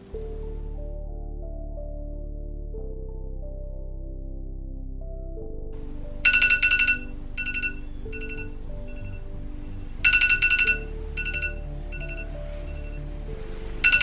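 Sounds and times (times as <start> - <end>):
soft background music: 0.0 - 14.0
phone alarm beeps: 6.2 - 9.2, 10.0 - 13.0.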